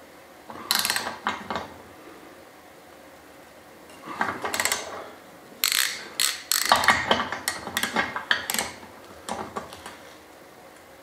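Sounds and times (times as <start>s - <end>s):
ratcheting torque wrench clicking: 0.7s - 1.2s, 4.4s - 4.9s, 5.6s - 9.4s.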